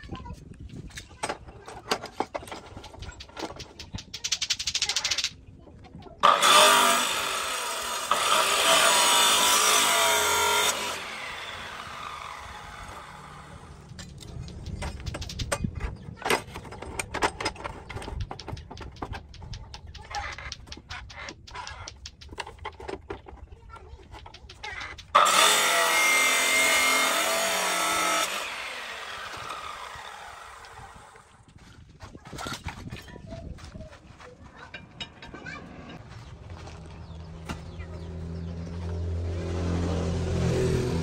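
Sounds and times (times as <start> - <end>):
vise clicks and knocks: 0.7 - 5.3, 13.8 - 25.4
chop saw whining: 6.2 - 15.5, 24.6 - 31.3.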